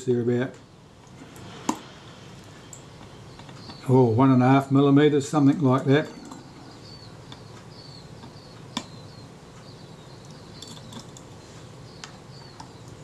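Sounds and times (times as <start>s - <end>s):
low steady hum: 0.0s - 13.0s
faint high chirps: 5.5s - 13.0s.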